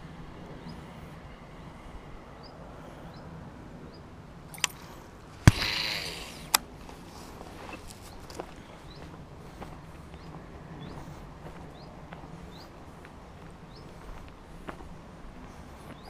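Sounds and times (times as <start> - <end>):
fishing line hissing off spool: 5.5 - 6.6.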